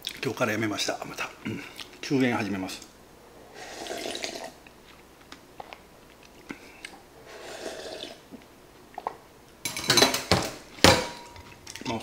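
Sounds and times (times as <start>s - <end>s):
slurping broth: 3.4s - 4.6s, 6.4s - 9.2s.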